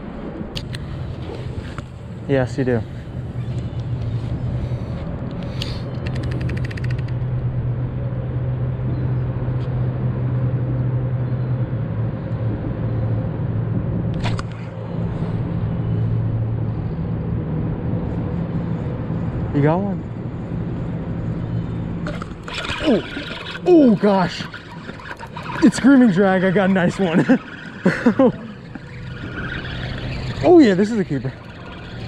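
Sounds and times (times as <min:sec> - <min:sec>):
low engine hum: 0:00.0 - 0:32.0
sharp click: 0:05.4 - 0:07.2
rapid clicks: 0:05.9 - 0:07.2.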